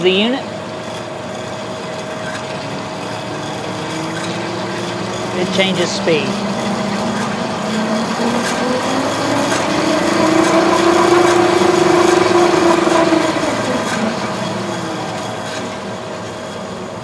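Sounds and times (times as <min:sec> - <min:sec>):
saw motor and belts whining: 0:00.0 - 0:17.0.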